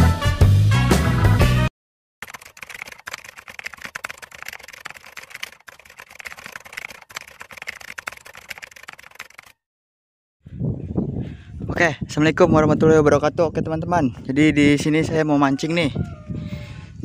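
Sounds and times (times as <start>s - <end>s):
rapid keyboard typing clicks: 2.2s - 9.6s.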